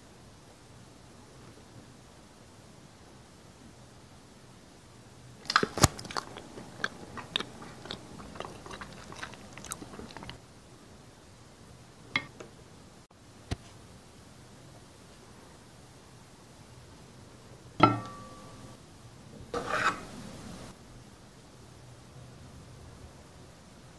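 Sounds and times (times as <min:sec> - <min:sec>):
crunchy biting and chewing: 0:05.4 - 0:10.4.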